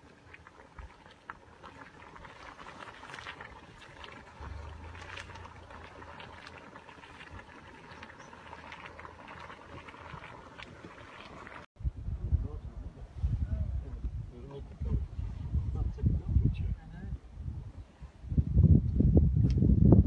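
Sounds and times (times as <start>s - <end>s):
pool boiling with hiss: 0.0s - 11.7s
wind rumble on microphone: 9.4s - 20.0s.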